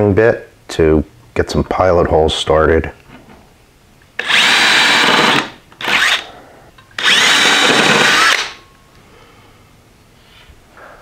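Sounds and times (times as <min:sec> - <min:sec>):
cordless drill spinning into wood: 0:04.2 - 0:06.2, 0:07.0 - 0:08.6.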